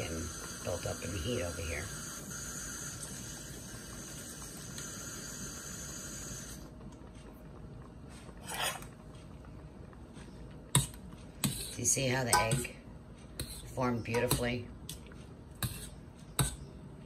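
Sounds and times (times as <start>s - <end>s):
steam hissing: 0.0s - 6.6s.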